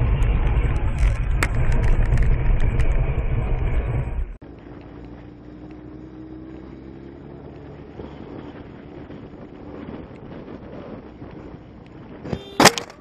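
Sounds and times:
wind noise on microphone: 0.0s - 4.3s, 7.4s - 13.0s
vehicle engine running: 0.0s - 13.0s.

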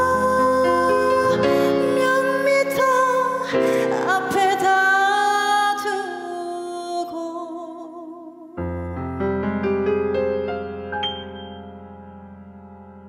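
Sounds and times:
keyboard accompaniment: 0.0s - 6.3s, 8.6s - 13.0s
woman singing a ballad: 0.0s - 8.7s.

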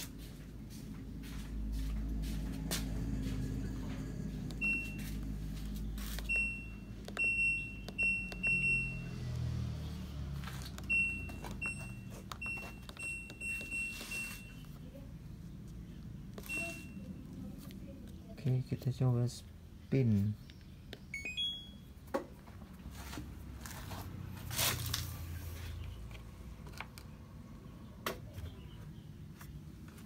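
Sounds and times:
control panel beeping: 4.5s - 5.3s, 6.2s - 9.5s, 10.8s - 14.7s, 16.3s - 17.1s, 21.0s - 21.9s.

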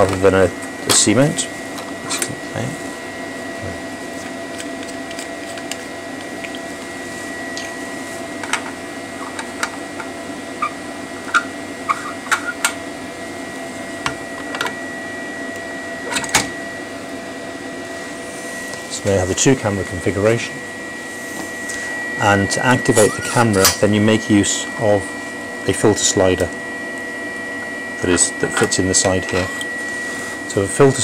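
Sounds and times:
lab equipment humming: 0.0s - 31.0s
high-pitched whine: 6.3s - 31.0s.

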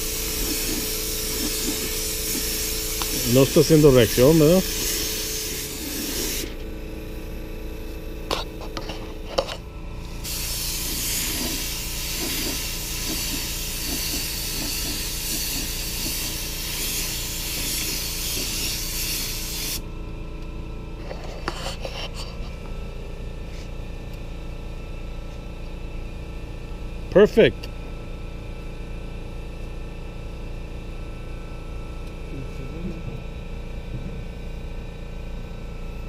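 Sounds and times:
paint spray gun hissing: 0.0s - 7.4s, 10.0s - 19.8s.

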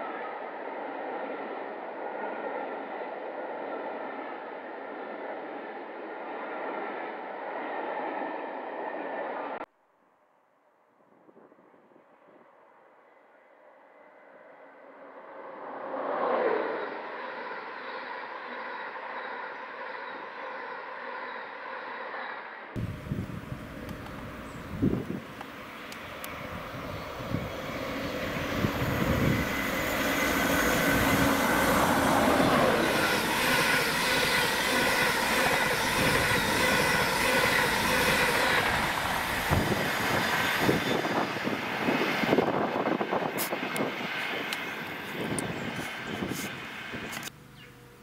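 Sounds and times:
train passing at speed: 0.0s - 9.7s, 12.0s - 47.3s.

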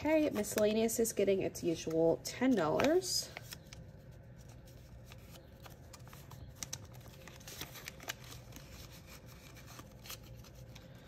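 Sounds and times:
paper bills rustling and clicking: 2.6s - 11.0s.

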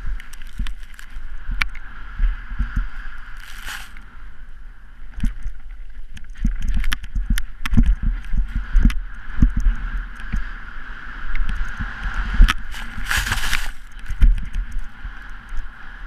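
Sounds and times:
snowboard clicks and thumps: 0.0s - 1.2s, 2.6s - 4.0s, 11.5s - 14.8s
snowboard scraping over snow: 0.0s - 4.2s, 8.0s - 16.0s
wind rushing on microphone: 0.0s - 16.0s.

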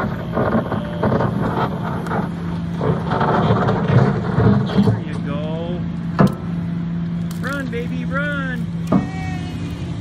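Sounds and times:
diesel engine running: 0.0s - 10.0s
bucket scraping and clattering: 0.4s - 5.2s.

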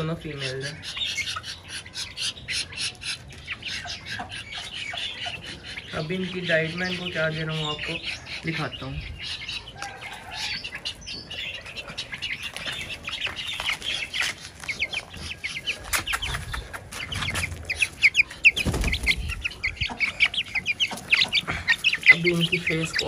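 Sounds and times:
chicks peeping: 0.0s - 23.0s.

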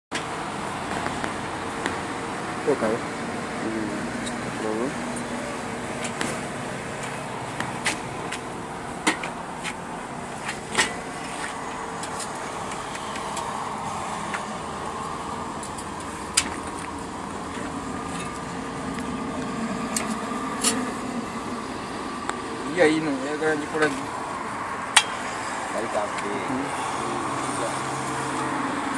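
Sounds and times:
sharp clicks and knocks: 9.0s - 9.8s.

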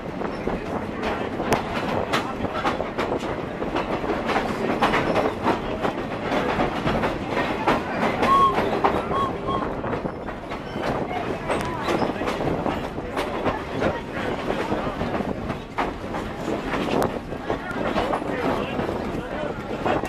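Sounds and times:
clicks and clatter of train: 0.0s - 20.0s
train wheels rumbling on rail: 0.0s - 20.0s
short high squeaks: 8.3s - 9.7s.

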